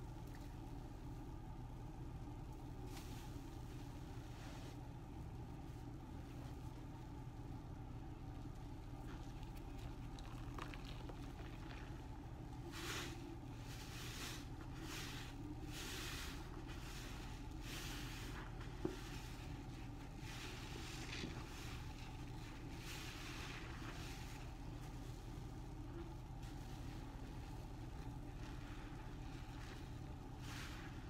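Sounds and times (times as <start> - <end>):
steady low hum: 0.0 - 31.0
wet sponge squelching: 9.0 - 31.0.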